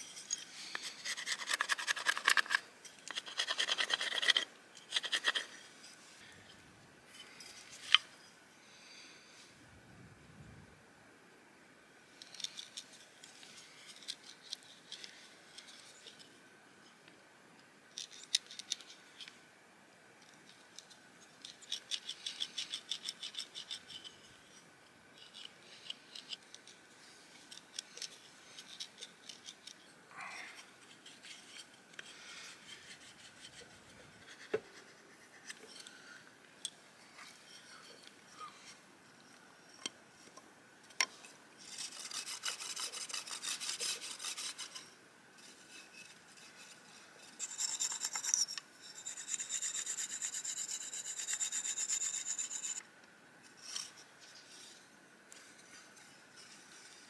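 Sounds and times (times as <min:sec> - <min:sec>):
stone blade scraping wood: 0:00.0 - 0:05.6, 0:41.6 - 0:44.9, 0:45.5 - 0:52.8.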